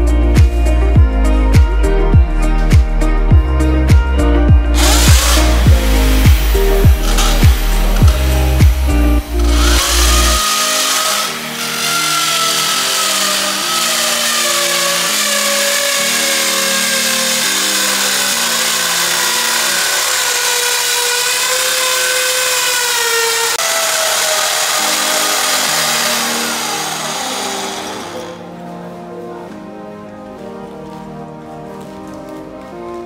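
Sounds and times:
background music: 0.0s - 33.0s
hiss of drilling: 4.8s - 14.4s
electric drill whining: 4.8s - 28.4s.

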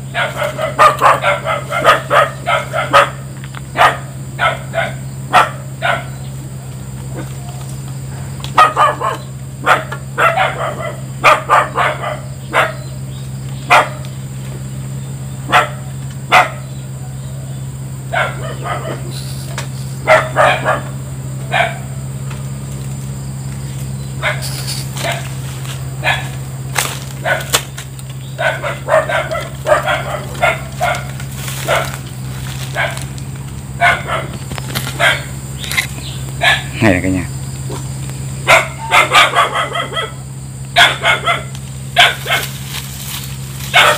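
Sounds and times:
dog barking: 0.0s - 6.3s, 8.5s - 14.2s, 15.4s - 16.8s, 18.0s - 19.2s, 19.9s - 22.0s, 24.2s - 25.4s, 26.0s - 26.4s, 27.2s - 27.6s, 28.3s - 35.4s, 36.3s - 36.9s, 38.4s - 42.6s, 43.6s - 43.9s
steady low hum: 0.0s - 43.9s.

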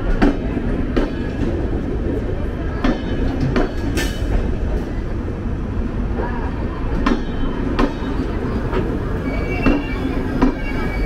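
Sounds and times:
train wheels rumbling on rail: 0.0s - 11.0s
wheels clacking over rail joints: 2.8s - 4.6s, 6.9s - 11.0s.

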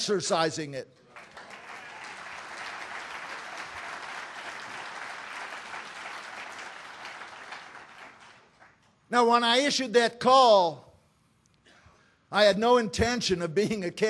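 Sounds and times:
audience applauding: 1.1s - 8.8s.

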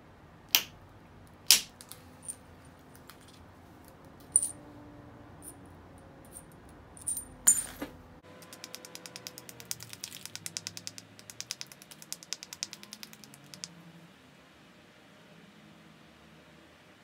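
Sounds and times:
stone clicking on flint: 8.4s - 13.7s.

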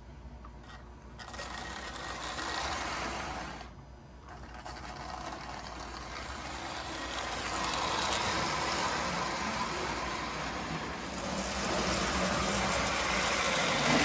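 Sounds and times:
toy train motor whirring: 0.6s - 14.0s
wheels rattling on metal rails: 0.6s - 14.0s.

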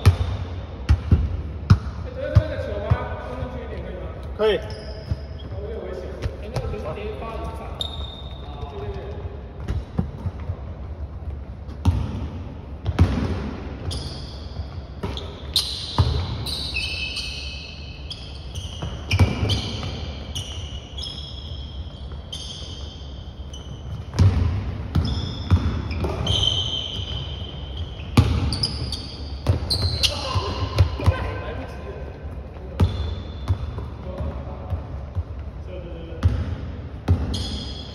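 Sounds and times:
sneakers squeaking: 0.0s - 37.9s
basketball bouncing on hardwood floor: 11.8s - 12.2s, 23.9s - 26.3s, 28.1s - 28.8s, 32.8s - 35.3s, 36.2s - 36.5s.

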